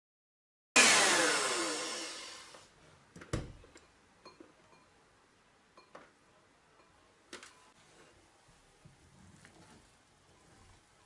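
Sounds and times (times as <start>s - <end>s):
hand mixer motor winding down: 0.8s - 2.6s.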